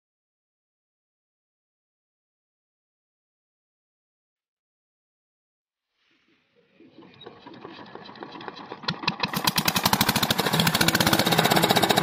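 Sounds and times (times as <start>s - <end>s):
diesel engine starting and running: 6.9s - 12.0s.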